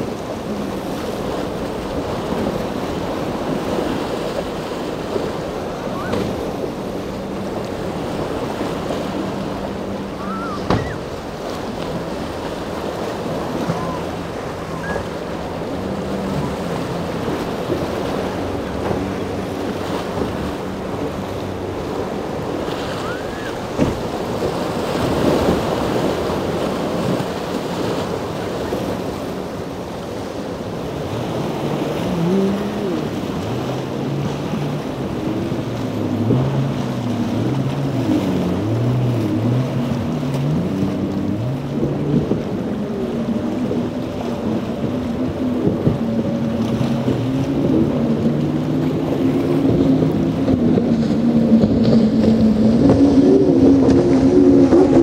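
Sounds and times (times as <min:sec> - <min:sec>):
outboard boat engines: 0:00.0 - 0:55.0
surf washing: 0:00.0 - 0:55.0
wind noise on microphone: 0:31.0 - 0:55.0.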